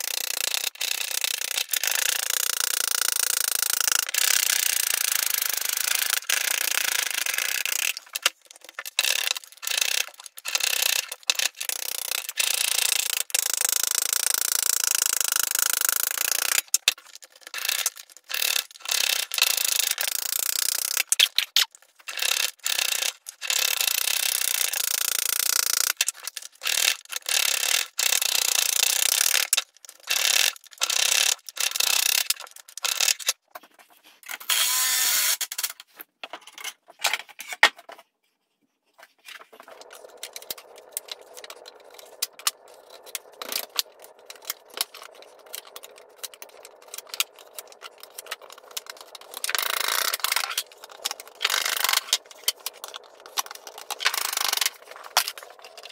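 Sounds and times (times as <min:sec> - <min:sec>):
metal clamps clicking and rattling: 0:00.0 - 0:33.4, 0:39.5 - 0:55.9.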